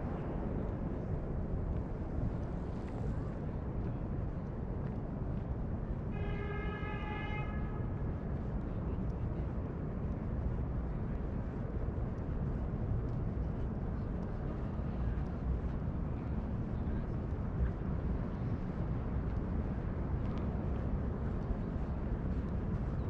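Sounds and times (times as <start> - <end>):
wind: 0.0 - 23.0.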